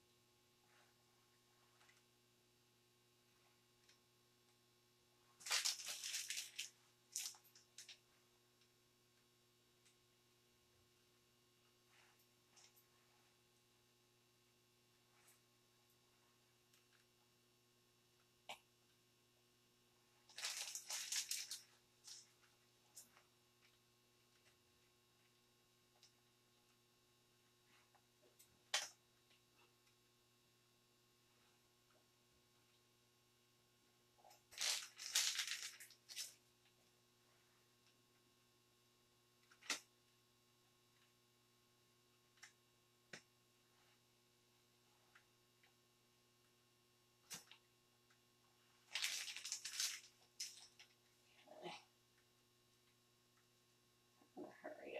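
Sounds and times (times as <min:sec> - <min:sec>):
faint room hum: 0:00.0 - 0:54.9
plastic piping bag crinkling: 0:05.4 - 0:08.0, 0:20.2 - 0:23.1, 0:34.2 - 0:36.4, 0:48.8 - 0:51.0.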